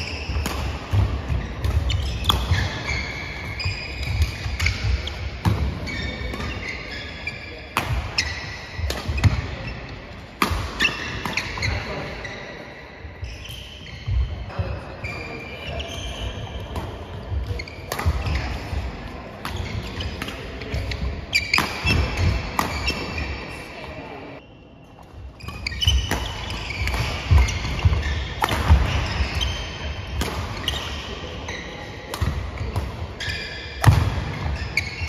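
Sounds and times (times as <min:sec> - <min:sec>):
rackets striking shuttlecock: 0:00.0 - 0:06.9, 0:25.4 - 0:31.0, 0:32.1 - 0:35.0
shoes squeaking on wooden court: 0:00.0 - 0:35.0.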